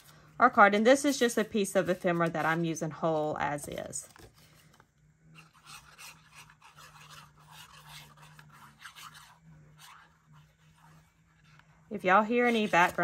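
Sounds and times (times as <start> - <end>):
paper rubbing on card: 5.3 - 13.0.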